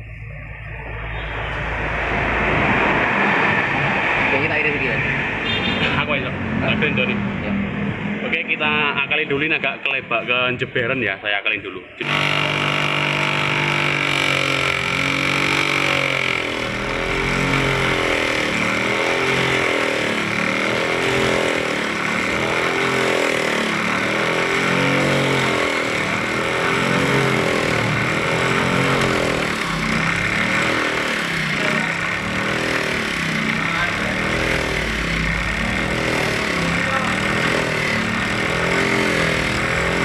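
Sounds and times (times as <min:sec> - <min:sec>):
bench grinder motor humming: 0:12.0 - 0:40.0
grinding hiss: 0:12.0 - 0:40.0.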